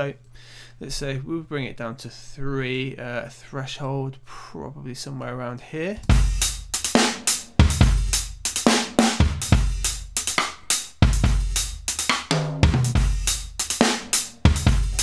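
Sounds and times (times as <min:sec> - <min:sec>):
drum kit loop: 0:06.0 - 0:15.0.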